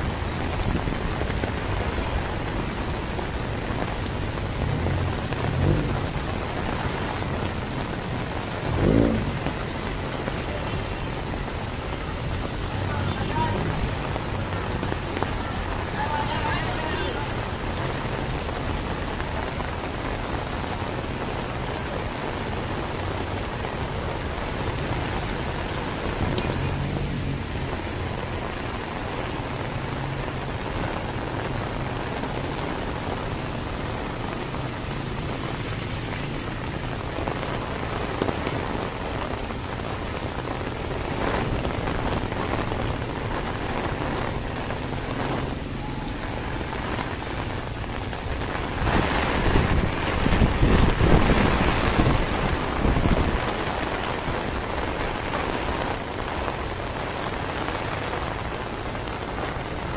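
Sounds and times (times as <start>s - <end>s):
heavy rain splashing on street: 0.0s - 59.9s.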